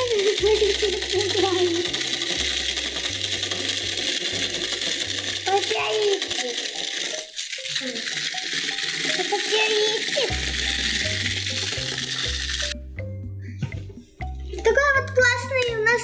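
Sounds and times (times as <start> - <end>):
toy spider rattling clatter: 0.0 - 12.8.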